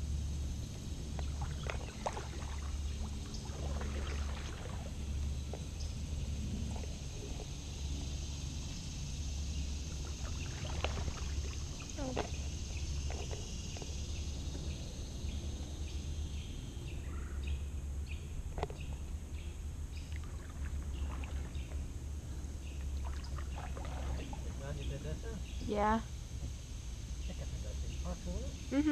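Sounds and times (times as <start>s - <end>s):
paddle splashing in water: 0.7s - 8.2s, 9.6s - 14.7s, 20.0s - 22.0s, 22.6s - 25.0s.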